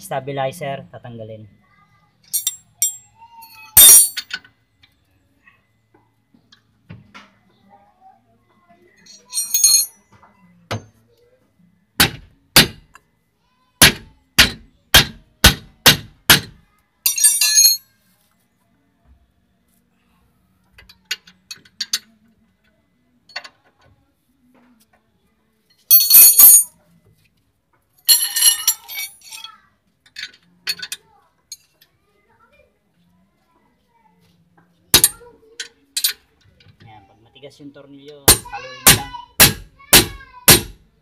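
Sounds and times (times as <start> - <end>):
metallic clinking and clattering: 2.3 - 4.5, 9.0 - 10.0, 17.1 - 17.8, 25.8 - 26.7, 28.0 - 31.8
hammer striking steel: 35.0 - 35.2, 38.3 - 40.8.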